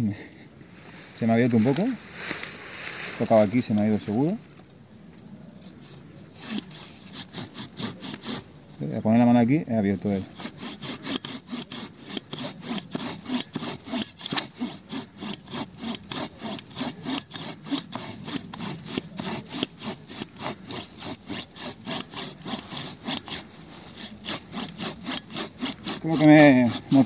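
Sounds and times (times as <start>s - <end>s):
hand saw rasping through log: 6.4s - 8.5s, 9.9s - 27.0s.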